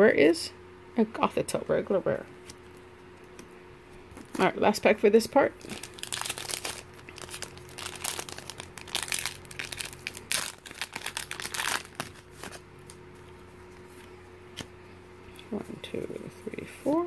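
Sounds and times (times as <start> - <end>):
faint steady hum: 0.0 - 17.0
foil pack tearing and crinkling: 5.6 - 12.6.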